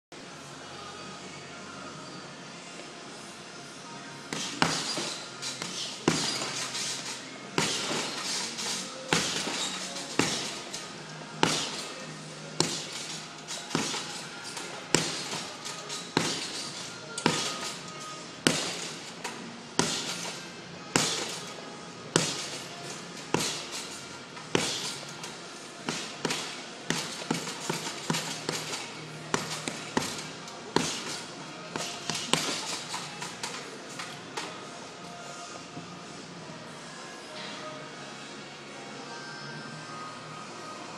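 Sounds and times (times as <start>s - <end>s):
background music: 0.1s - 40.9s
fists punching heavy bag: 4.3s - 6.7s, 7.6s - 10.7s, 11.4s - 11.9s, 12.6s - 17.8s, 18.4s - 19.0s, 19.8s - 20.4s, 21.0s - 21.5s, 22.2s - 22.6s, 23.3s - 23.8s, 24.5s - 25.0s, 25.9s - 33.0s.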